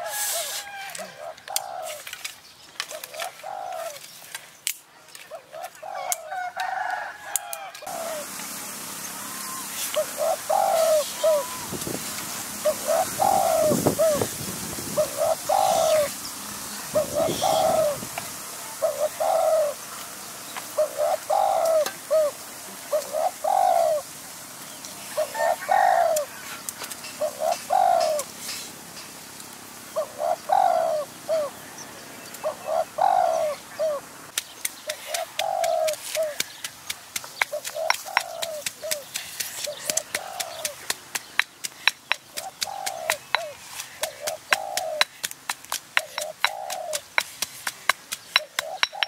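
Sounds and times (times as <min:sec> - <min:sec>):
dove cooing: 0:00.0 - 0:02.1, 0:02.9 - 0:04.0, 0:05.3 - 0:07.0, 0:07.9 - 0:08.3, 0:09.5 - 0:11.7, 0:12.6 - 0:14.3, 0:14.9 - 0:18.1, 0:18.8 - 0:19.8, 0:20.7 - 0:24.1, 0:25.1 - 0:26.4, 0:27.2 - 0:28.3, 0:30.0 - 0:31.6, 0:32.4 - 0:34.1, 0:34.9 - 0:36.5, 0:37.5 - 0:40.8, 0:42.3 - 0:45.1, 0:46.0 - 0:47.1, 0:48.3 - 0:49.0
stone pestle pounding in mortar: 0:34.7 - 0:49.0.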